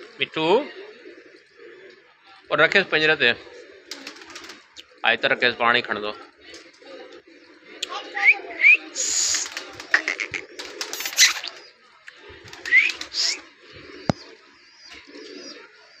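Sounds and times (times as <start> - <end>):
parakeet squawks and screeches: 9.3 - 11.6.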